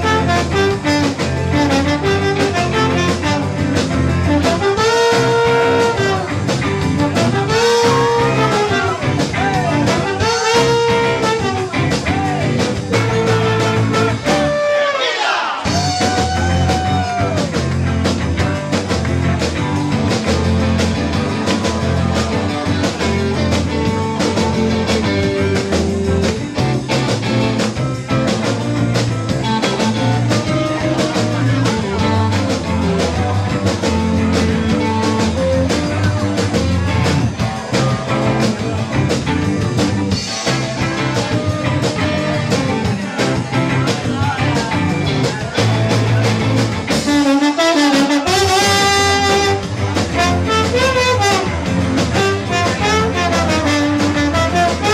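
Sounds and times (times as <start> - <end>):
rock and roll band playing: 0.0 - 54.9
slide trombone glide: 4.2 - 6.3, 7.0 - 9.0, 9.9 - 11.8, 13.0 - 15.2, 47.0 - 54.9.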